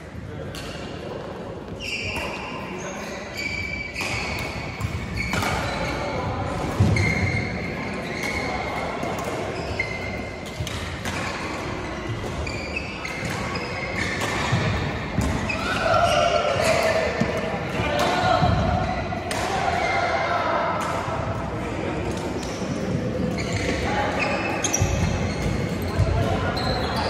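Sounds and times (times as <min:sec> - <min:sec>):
shoe squeaks on court floor: 0:01.8 - 0:08.7, 0:09.3 - 0:14.7, 0:22.4 - 0:27.0.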